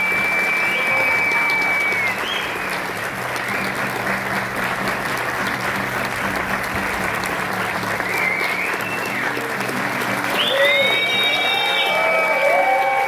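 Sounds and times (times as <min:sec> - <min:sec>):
audience applauding: 0:00.0 - 0:13.0
acoustic guitar playing: 0:03.0 - 0:10.4.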